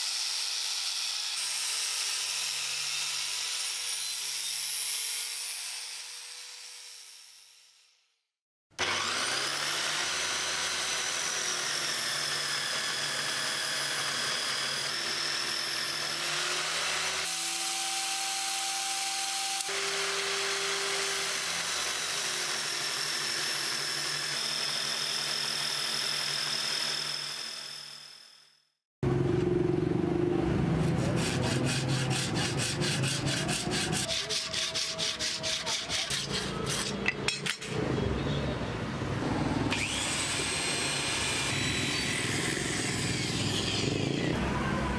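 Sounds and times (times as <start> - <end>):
busy workshop sound: 0.0 - 44.9
electric sander whining: 8.8 - 28.2, 39.7 - 44.5
hand tool scraping wood block: 30.8 - 37.8.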